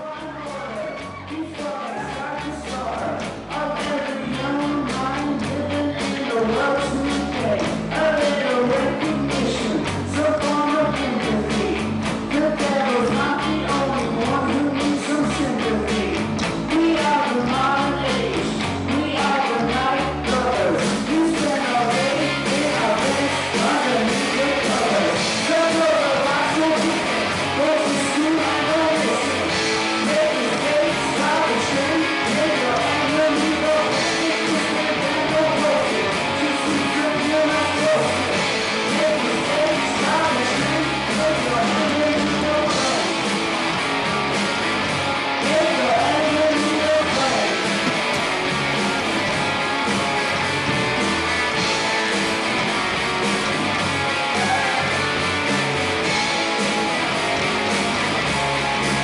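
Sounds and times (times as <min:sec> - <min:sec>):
bass: 0:00.0 - 0:59.0
rock song: 0:00.0 - 0:59.0
drum beat: 0:47.4 - 0:55.0.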